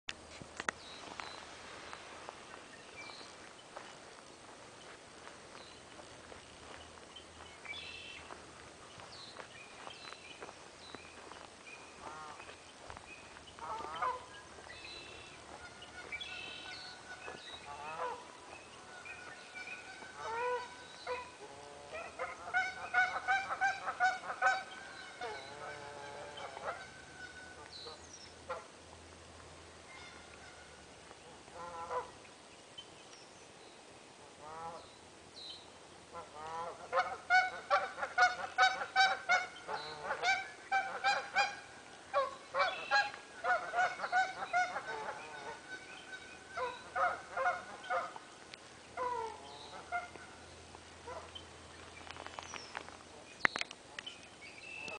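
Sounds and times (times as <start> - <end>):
geese honking: 12.0 - 12.6, 13.6 - 28.7, 29.9 - 30.8, 31.5 - 32.2, 36.1 - 50.4, 51.0 - 51.4.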